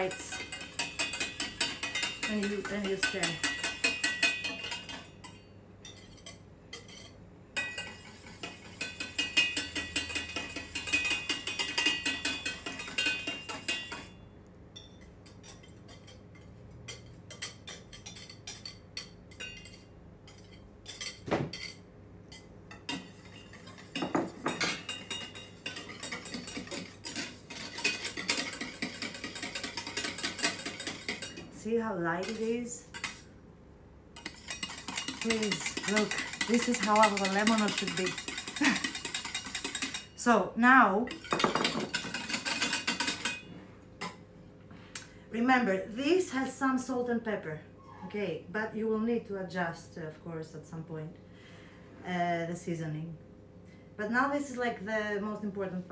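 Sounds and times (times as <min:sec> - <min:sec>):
whisk clinking against saucepan: 0:00.0 - 0:14.2, 0:14.8 - 0:31.5, 0:32.2 - 0:33.3, 0:34.2 - 0:40.2, 0:41.1 - 0:44.2.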